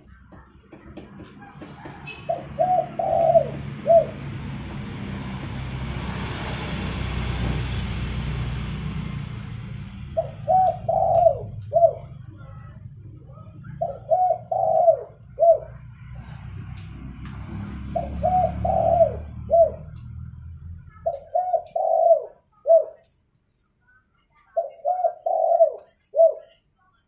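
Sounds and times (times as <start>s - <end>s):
dove cooing: 0.0s - 4.4s, 10.0s - 16.5s, 17.5s - 23.1s, 24.6s - 26.6s.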